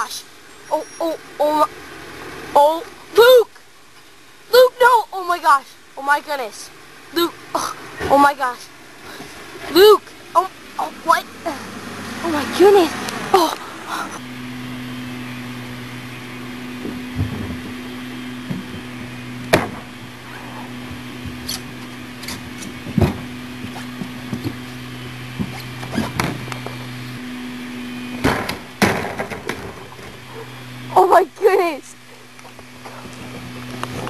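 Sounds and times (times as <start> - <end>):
low hum: 0.0 - 34.0
knocks and thuds: 16.8 - 17.8, 18.4 - 20.1, 20.8 - 24.7, 25.4 - 26.5, 28.2 - 30.2.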